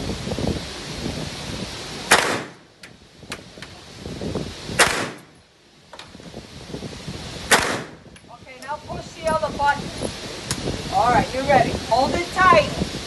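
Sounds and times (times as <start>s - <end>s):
fainter distant gunshot cracks: 2.1s - 2.6s, 7.5s - 8.0s
gunshots with echo: 2.1s - 2.6s, 4.8s - 5.2s, 7.5s - 8.0s.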